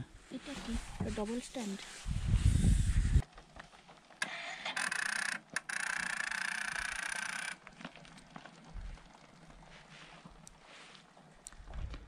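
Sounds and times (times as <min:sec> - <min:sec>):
motorcycle electric starter whirring: 0:04.2 - 0:07.7.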